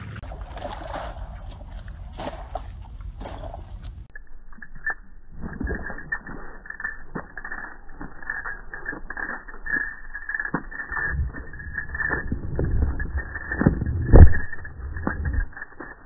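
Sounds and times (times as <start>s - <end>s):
splashing in shallow water: 0.0s - 4.1s
low rumble: 9.8s - 16.0s.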